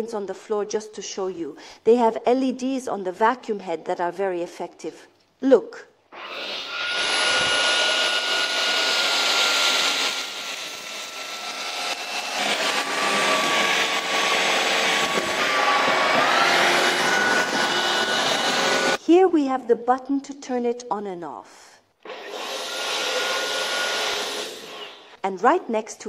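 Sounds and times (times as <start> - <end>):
stick vacuum motor whine: 6.2 - 19.0, 22.1 - 25.2.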